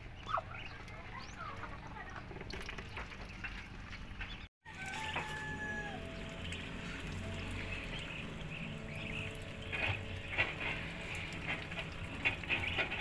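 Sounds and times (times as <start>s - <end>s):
ducklings pecking at feed: 6.2s - 13.0s.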